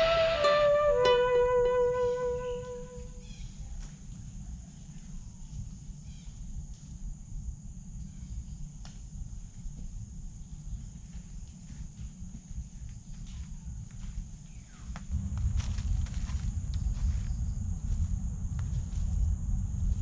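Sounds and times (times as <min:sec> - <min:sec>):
high-pitched insect drone: 0:00.0 - 0:03.4
footsteps on dry leaves: 0:15.1 - 0:19.4
low rumble: 0:15.1 - 0:20.0.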